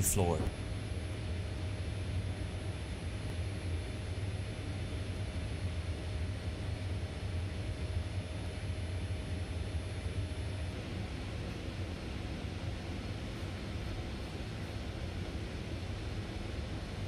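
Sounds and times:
machinery hum: 0.0 - 6.7.

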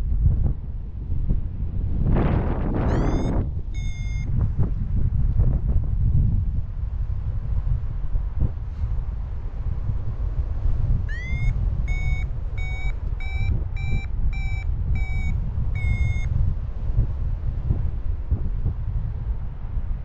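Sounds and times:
wind on microphone: 0.0 - 20.0
variometer beeps: 2.9 - 4.4, 11.1 - 16.4.

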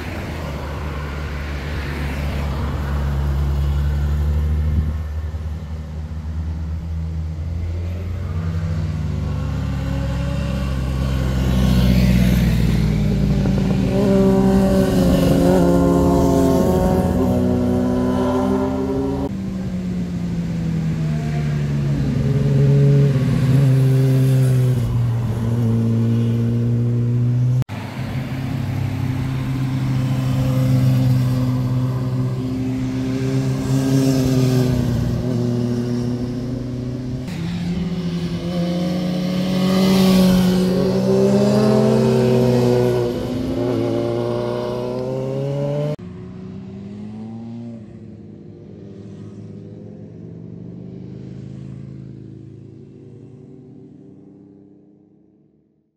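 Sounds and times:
motorcycle engines accelerating: 7.3 - 54.7.

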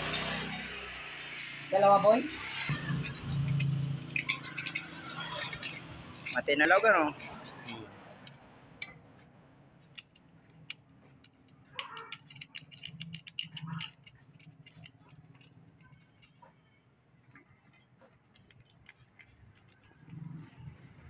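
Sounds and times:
small metal parts clinking: 2.8 - 6.5, 9.8 - 16.7, 17.8 - 21.0.

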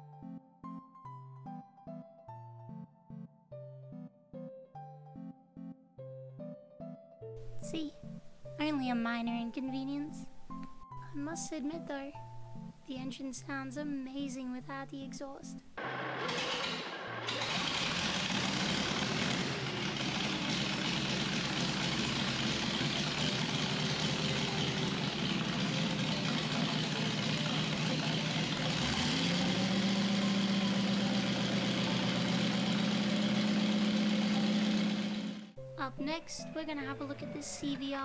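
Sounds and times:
petrol engine running: 15.8 - 35.6.

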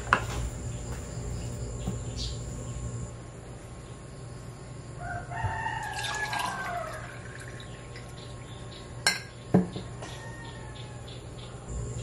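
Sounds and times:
rooster crowing: 5.0 - 7.5, 9.8 - 11.4.

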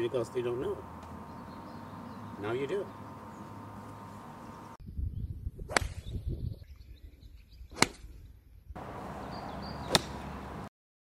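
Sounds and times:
wind rumbling on microphone: 3.0 - 10.6
golf club striking ball: 7.8 - 8.0, 9.6 - 10.5.

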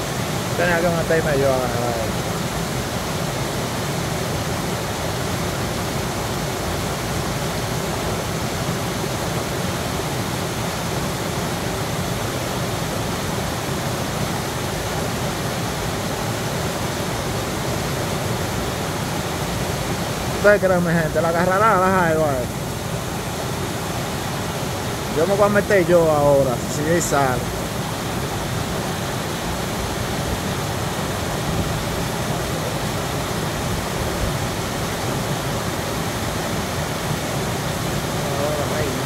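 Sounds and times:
river water rushing over rocks: 0.0 - 39.0.

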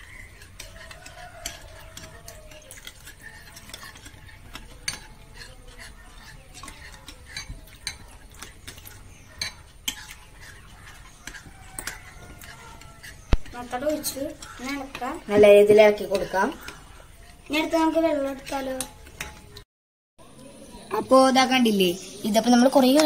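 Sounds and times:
spoon scraping and clinking glass bowl: 0.0 - 19.6.

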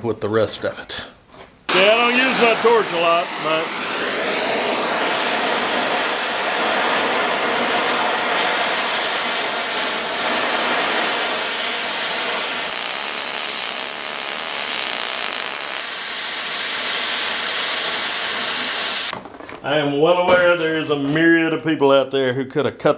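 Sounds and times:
cutting torch hissing: 1.7 - 19.1.

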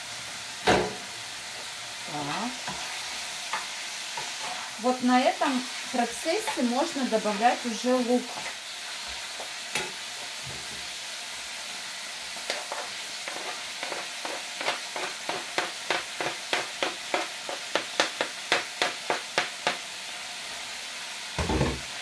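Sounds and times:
meat sizzling in a pan: 0.0 - 22.0
knife tapping cutting board: 14.6 - 19.8.

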